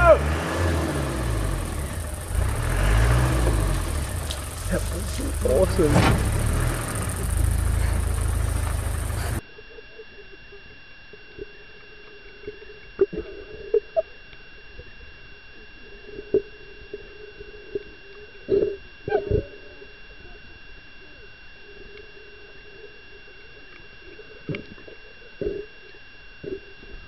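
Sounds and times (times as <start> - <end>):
vehicle engine running loudly: 0.0 - 9.4
faint underwater hum: 0.0 - 27.0.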